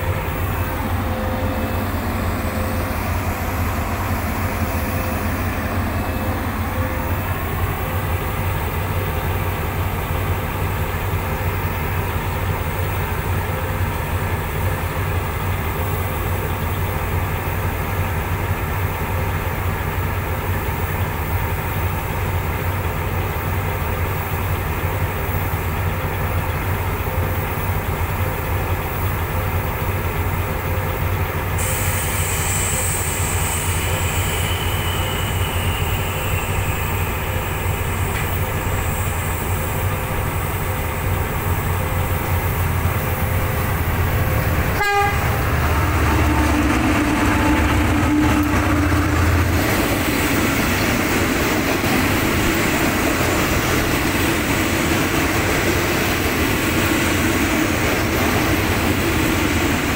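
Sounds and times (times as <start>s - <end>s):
locomotive engine droning: 0.0s - 59.9s
hiss: 31.5s - 44.4s.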